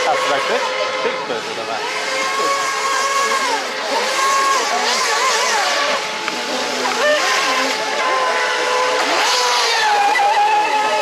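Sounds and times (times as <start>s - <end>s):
model speedboat motor whining: 0.0s - 11.0s.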